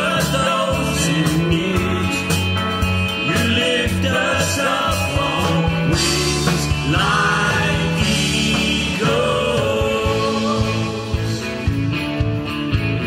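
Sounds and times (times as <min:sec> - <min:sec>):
band accompaniment with bass: 0:00.0 - 0:13.0
person singing worship song: 0:03.2 - 0:11.4.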